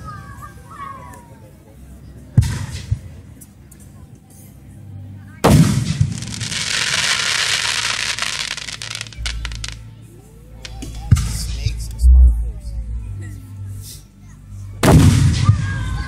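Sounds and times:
firework bang: 0:05.4 - 0:09.8, 0:14.8 - 0:15.6
firework crackling: 0:05.4 - 0:09.9
firework shell burst: 0:05.5 - 0:09.8.

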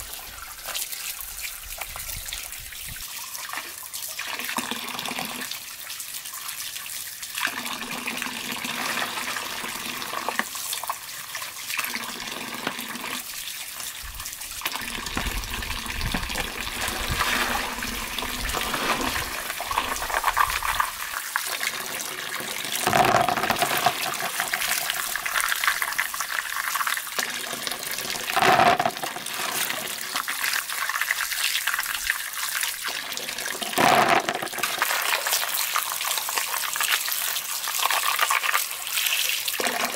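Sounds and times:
water running into basin: 0:00.0 - 0:39.9
mussels rubbed and splashed: 0:15.1 - 0:25.8, 0:27.2 - 0:30.4
snails clattering into plastic basin: 0:22.8 - 0:25.0, 0:27.2 - 0:30.0, 0:33.8 - 0:34.9.

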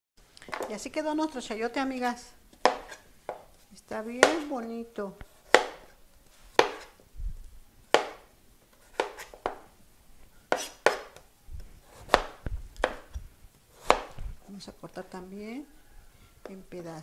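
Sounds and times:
knife chopping on plastic board: 0:02.5 - 0:07.0, 0:07.9 - 0:09.7, 0:10.5 - 0:11.2, 0:11.8 - 0:14.3.

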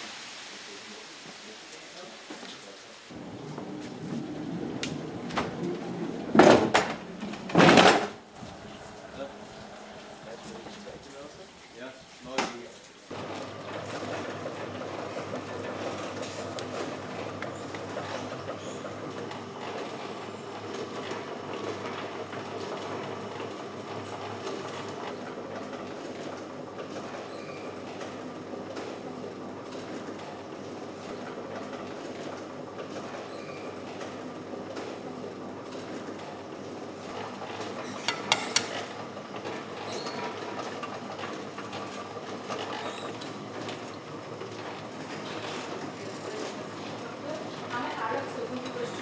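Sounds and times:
machinery clattering: 0:03.1 - 0:11.4, 0:13.1 - 0:27.3
low machine hum: 0:03.1 - 0:11.8
steady background hum: 0:03.1 - 0:27.2, 0:33.8 - 0:49.0
crockery clinking: 0:38.0 - 0:38.9.

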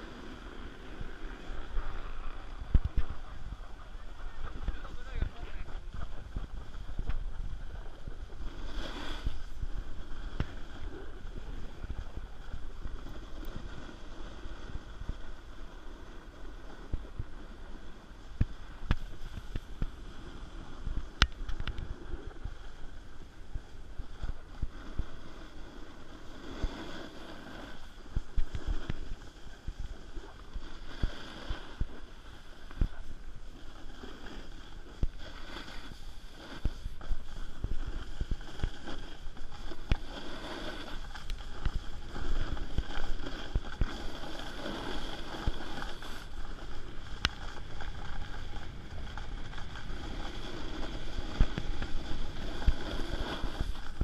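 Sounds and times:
wind buffeting microphone: 0:00.0 - 0:13.6
snowboard sliding over snow: 0:00.0 - 0:54.0
wind on microphone: 0:00.0 - 0:54.0.

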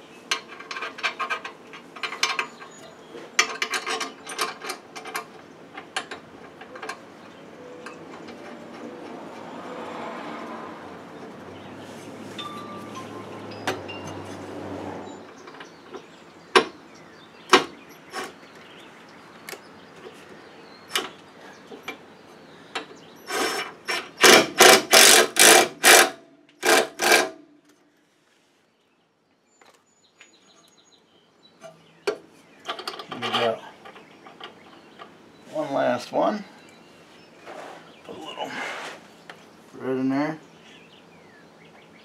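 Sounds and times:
impact driver bursts: 0:23.3 - 0:27.4.

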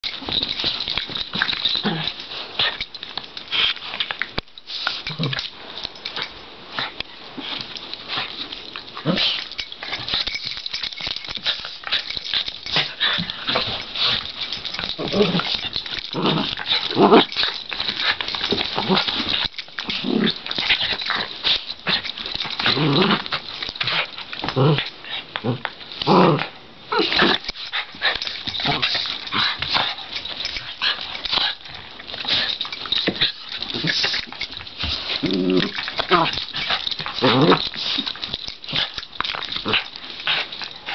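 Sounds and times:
dogs scuffling: 0:00.0 - 0:26.1, 0:27.0 - 0:40.9
dog growling: 0:14.8 - 0:17.6, 0:18.5 - 0:27.5, 0:35.1 - 0:40.9.

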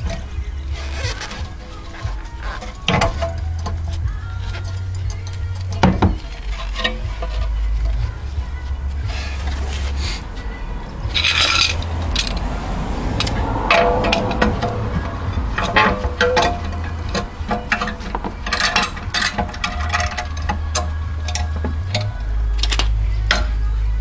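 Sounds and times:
short metallic rings: 0:11.1 - 0:12.4
steel tools clinking on metal: 0:11.1 - 0:12.4, 0:15.6 - 0:23.6.

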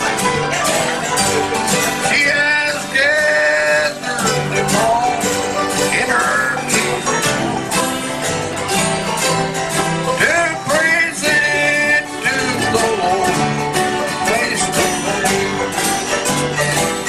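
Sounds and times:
acoustic string instruments strumming: 0:00.0 - 0:17.0
man singing into a microphone: 0:02.0 - 0:07.2, 0:10.2 - 0:15.8.

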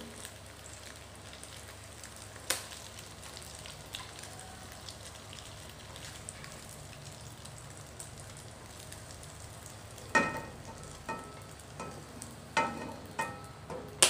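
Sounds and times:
tofu sizzling in oil: 0:00.0 - 0:14.0
spatula tapping pan: 0:10.1 - 0:14.0.

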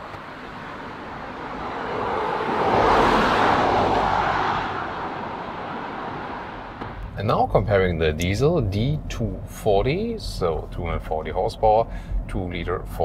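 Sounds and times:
vehicle driving past: 0:00.5 - 0:08.9.

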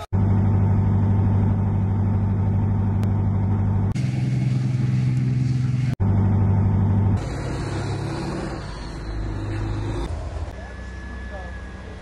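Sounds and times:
armoured vehicle engine droning: 0:00.0 - 0:12.0.

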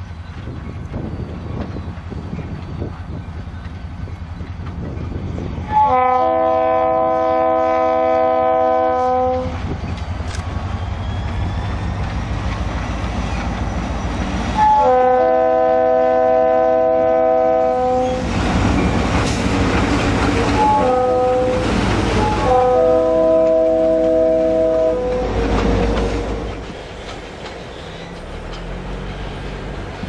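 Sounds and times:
freight cars rolling on rails: 0:00.0 - 0:30.0
locomotive engine rumble: 0:00.0 - 0:30.0
locomotive air horn: 0:05.6 - 0:09.6, 0:14.6 - 0:18.2, 0:20.4 - 0:26.5.

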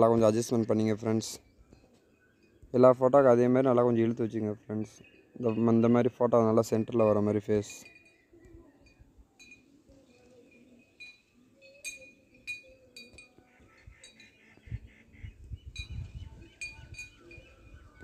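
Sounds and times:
faint high clinks: 0:04.7 - 0:15.0.

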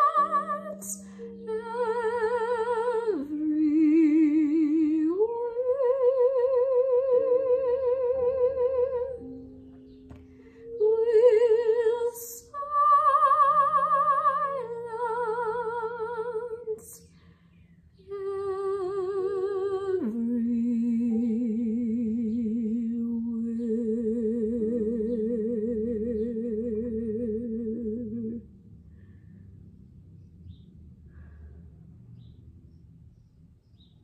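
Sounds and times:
piano accompaniment: 0:00.0 - 0:05.8, 0:06.6 - 0:16.8, 0:17.9 - 0:25.7
soprano singing: 0:00.0 - 0:28.6.

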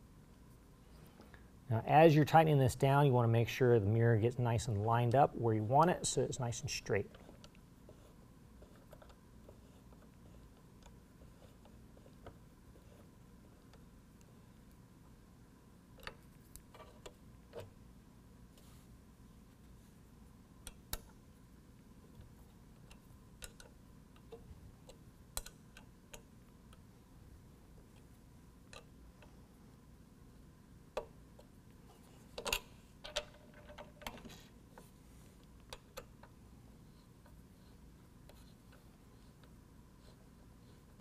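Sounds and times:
metallic wrench clicks and taps: 0:22.9 - 0:26.3.

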